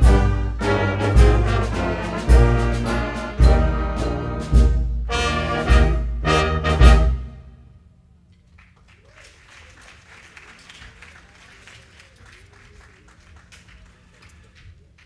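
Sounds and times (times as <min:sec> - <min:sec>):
brass band chord: 0:00.0 - 0:07.7
audience applause: 0:08.5 - 0:15.0.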